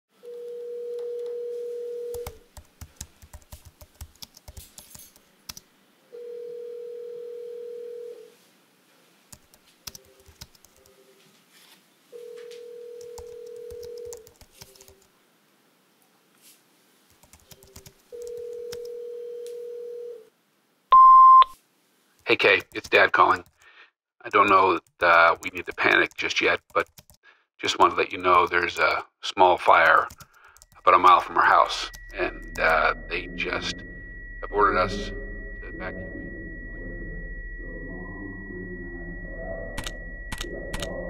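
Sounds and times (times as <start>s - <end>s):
telephone ringback tone: 0.2s - 2.4s, 6.1s - 8.4s, 12.1s - 14.2s, 18.1s - 20.3s.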